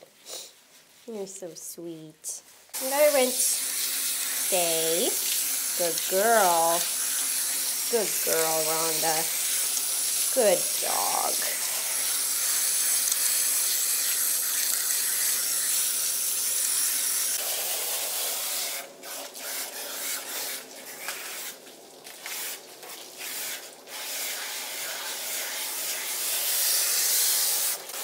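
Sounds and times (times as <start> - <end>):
hose nozzle spraying water: 2.8 - 28.0.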